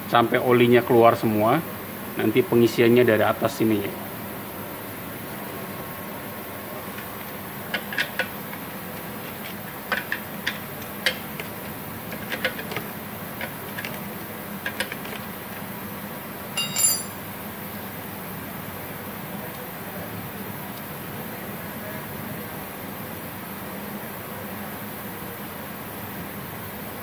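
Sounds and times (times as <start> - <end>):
steady background hum: 0.0 - 27.0
metallic clink: 16.6 - 17.2.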